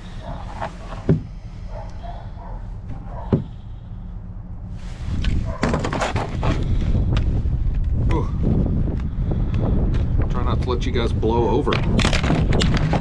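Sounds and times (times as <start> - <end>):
wind buffeting microphone: 4.7 - 13.0.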